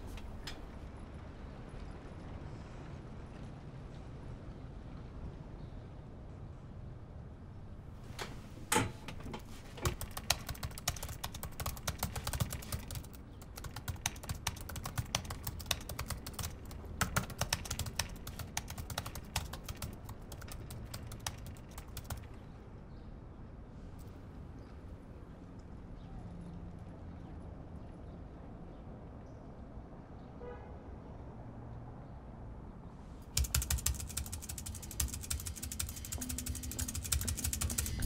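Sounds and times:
computer keyboard typing: 9.4 - 22.4, 33.3 - 38.0.

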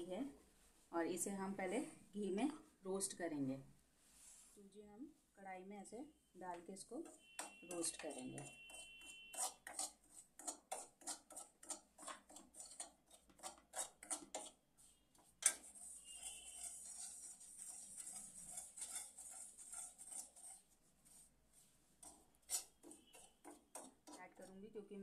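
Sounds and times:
spoon scraping semolina in a pan: 6.8 - 25.0.

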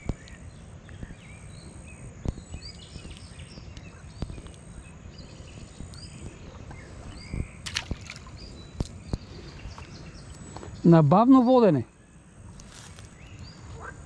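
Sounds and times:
small birds chirping: 0.0 - 14.0
rustle of handling tackle: 12.6 - 13.4.

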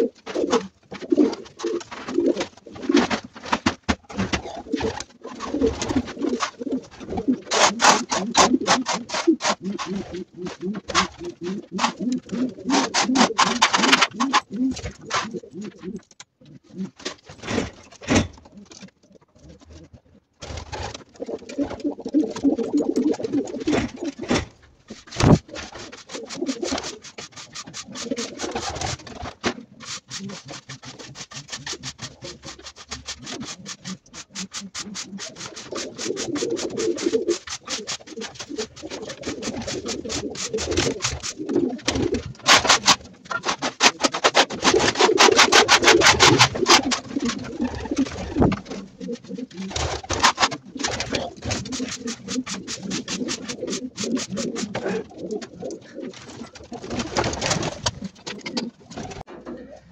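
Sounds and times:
pigeons cooing: 0.0 - 3.1, 4.1 - 20.0, 20.7 - 24.5, 25.1 - 59.8
scraper rasping across floor: 25.0 - 29.2, 29.8 - 41.5, 43.6 - 48.1, 51.4 - 54.8.

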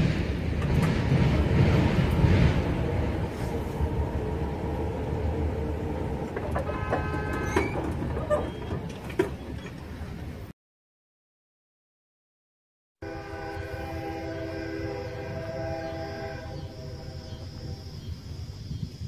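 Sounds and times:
wind on microphone: 14.8 - 19.0.

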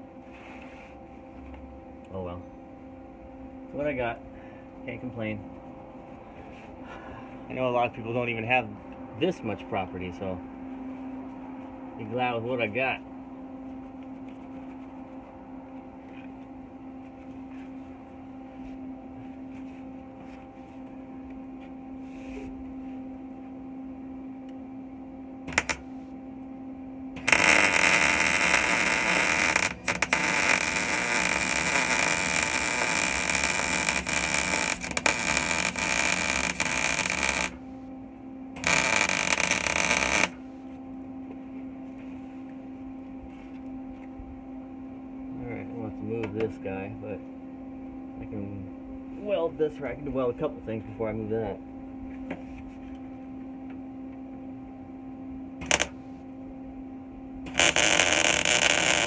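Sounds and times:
steady low hum: 0.0 - 59.0
welder arc crackling: 25.5 - 26.0, 27.2 - 37.8, 38.6 - 40.5, 55.6 - 56.0, 57.5 - 59.0.

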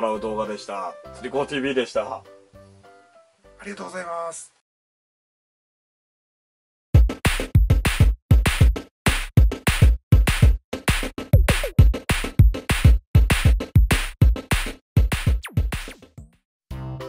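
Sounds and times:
soft keyboard music: 0.0 - 4.2
electronic drum machine beat: 7.0 - 16.3.

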